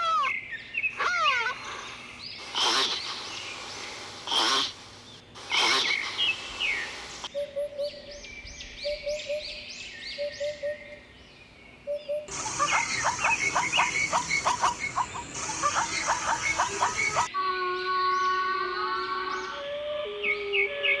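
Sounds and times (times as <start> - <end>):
small bird chirping: 0.2 - 11.0, 11.9 - 17.3.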